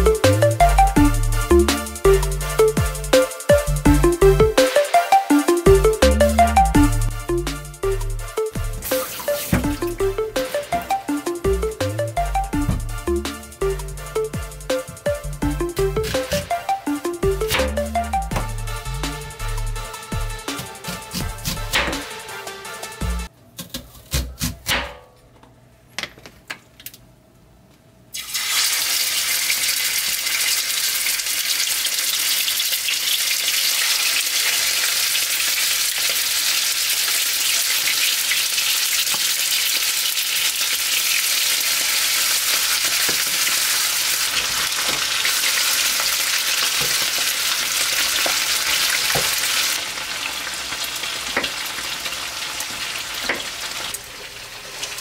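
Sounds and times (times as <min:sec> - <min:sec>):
steaks sizzling in frying pan: 0:28.4 - 0:55.0.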